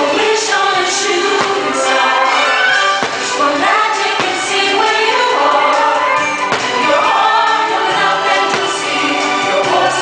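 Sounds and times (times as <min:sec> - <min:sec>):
music with choir singing: 0:00.0 - 0:10.0
firework bangs: 0:02.7 - 0:05.0.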